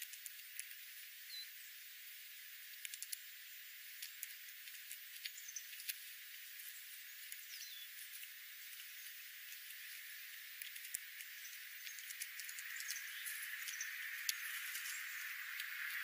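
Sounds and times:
steady hiss: 0.0s - 16.0s
faint high bird chirps: 1.2s - 1.8s, 5.2s - 5.9s, 6.6s - 16.0s
beaks cracking seeds: 2.7s - 3.3s, 3.9s - 16.0s.

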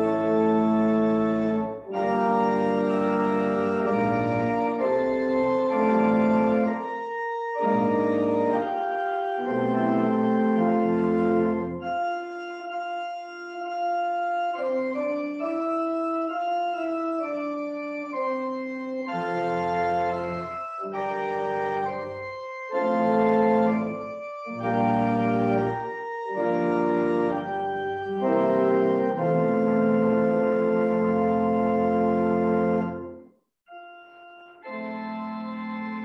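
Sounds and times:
church organ chords: 0.0s - 36.0s.

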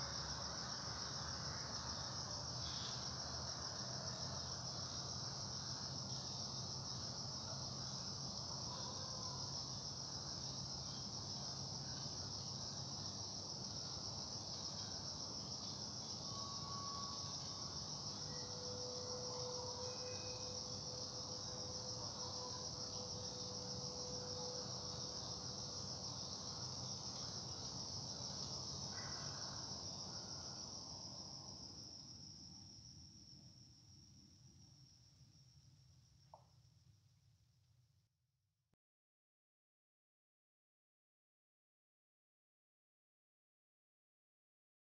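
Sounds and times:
crickets chirring: 0.0s - 36.6s.

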